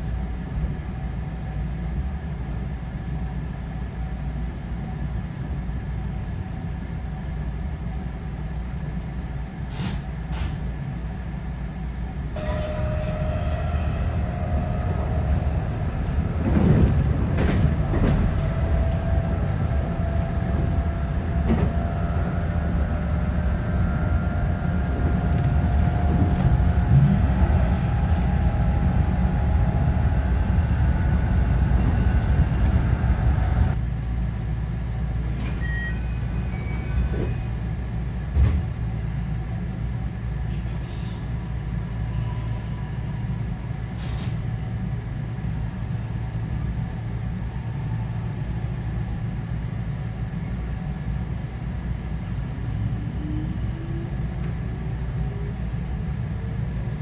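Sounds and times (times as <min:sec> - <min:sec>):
train wheels rumbling on rail: 0:00.0 - 0:57.0
faint steady tones: 0:12.4 - 0:16.5.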